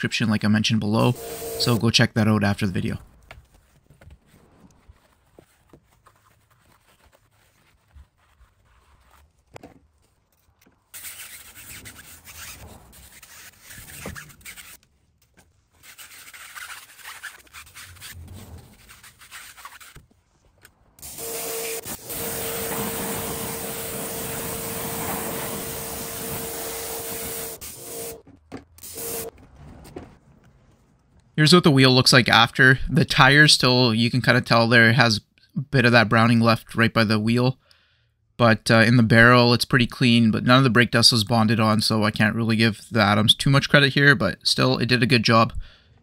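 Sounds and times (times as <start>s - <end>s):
brush scrubbing a wheel: 15.7s - 20.4s, 21.0s - 28.2s
water spray with hum: 21.1s - 28.2s.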